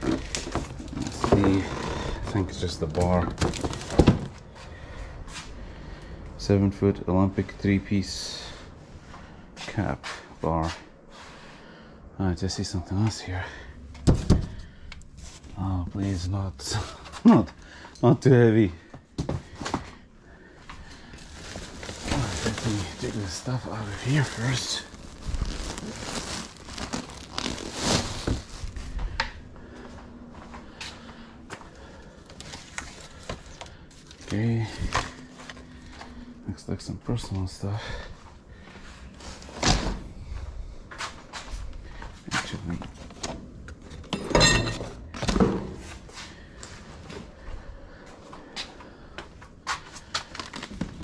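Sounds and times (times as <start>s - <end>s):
rustling and crinkling: 0.0s - 6.0s, 18.9s - 36.4s, 44.9s - 51.0s.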